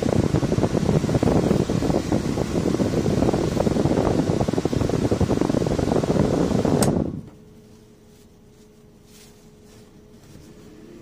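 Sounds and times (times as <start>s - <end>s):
ac blower blowing through vent: 0.0s - 11.0s
tissue fluttering in air stream: 7.6s - 11.0s.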